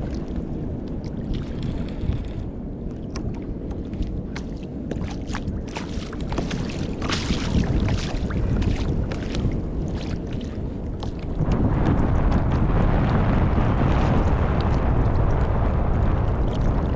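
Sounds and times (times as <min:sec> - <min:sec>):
water lapping against hull: 0:00.0 - 0:16.9
wind buffeting microphone: 0:00.0 - 0:16.9
small splashes: 0:03.1 - 0:12.0.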